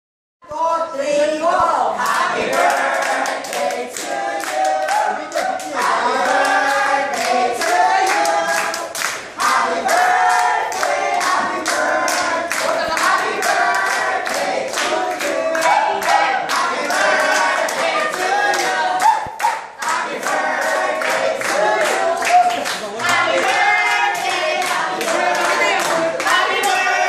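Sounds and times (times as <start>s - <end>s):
crowd singing: 1.0s - 27.0s
hands clapping: 2.0s - 26.9s.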